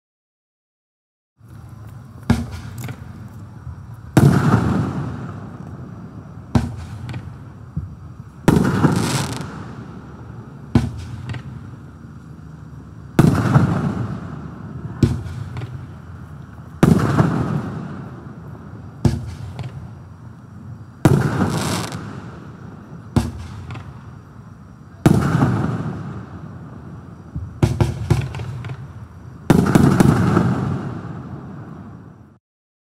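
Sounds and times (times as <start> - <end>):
firework launch thumps: 2.2 - 3.2, 6.5 - 9.8, 10.7 - 11.6, 15.0 - 15.9, 19.0 - 19.9, 23.1 - 24.0, 27.3 - 28.9
aerial firework bursts: 4.1 - 7.5, 8.4 - 12.0, 13.1 - 16.0, 16.8 - 20.0, 21.0 - 24.0, 25.1 - 32.2.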